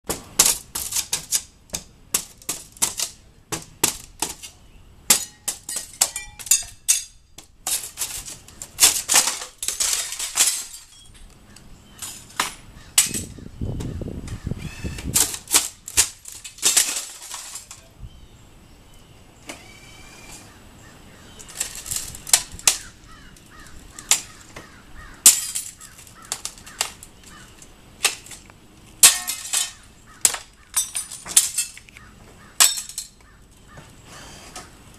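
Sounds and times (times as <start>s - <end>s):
glass shards clinking: 5.1s - 11.3s, 15.2s - 17.9s, 25.2s - 26.8s, 29.0s - 31.9s, 32.6s - 33.2s
glass cracking: 25.2s - 27.4s, 28.0s - 31.9s, 32.6s - 33.2s.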